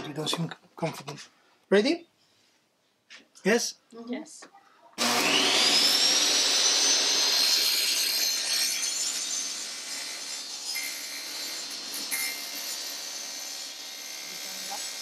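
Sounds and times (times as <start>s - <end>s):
table saw whining: 5.0s - 15.0s.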